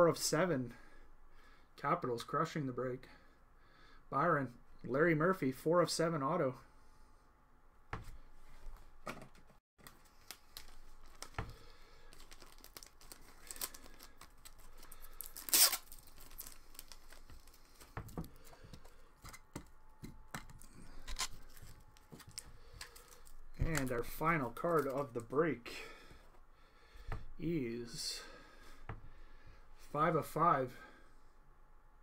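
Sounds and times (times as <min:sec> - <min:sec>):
packaging tearing: 0:09.8 - 0:18.0, 0:21.0 - 0:24.0.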